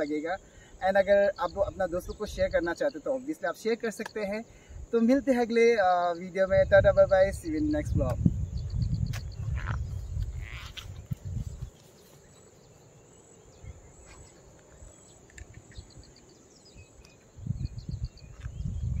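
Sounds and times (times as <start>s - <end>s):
insects chirping: 0.0s - 19.0s
wind rumbling on microphone: 1.0s - 2.8s, 4.5s - 12.1s, 13.5s - 19.0s.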